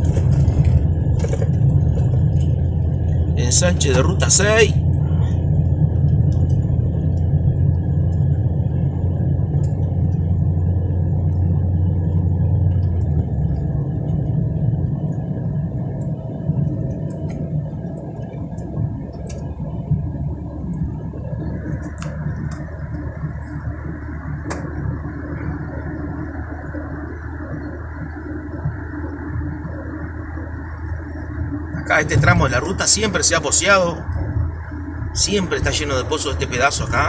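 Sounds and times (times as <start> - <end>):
car engine and tyre rumble: 0.0 - 37.0.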